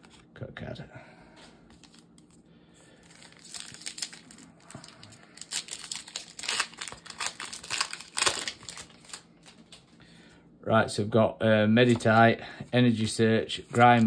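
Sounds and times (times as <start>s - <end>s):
foil wrapper tearing and crinkling: 3.0s - 9.8s.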